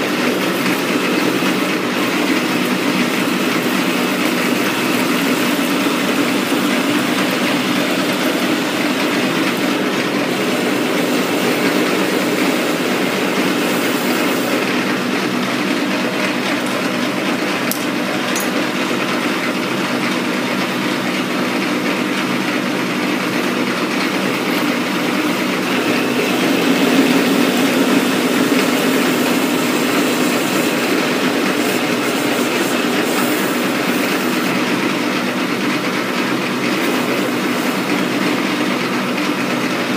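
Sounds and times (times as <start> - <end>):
coolant hissing: 0.0 - 39.9
metal lathe humming: 0.0 - 39.9.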